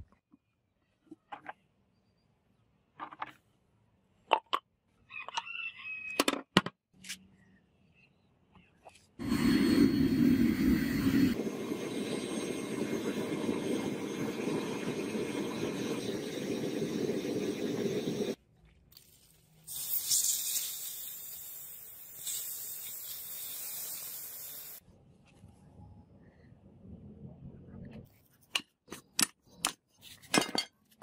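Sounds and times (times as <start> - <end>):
gas burner rushing: 9.2 - 18.4
molten metal sizzling in mould: 9.2 - 18.4, 19.7 - 24.8.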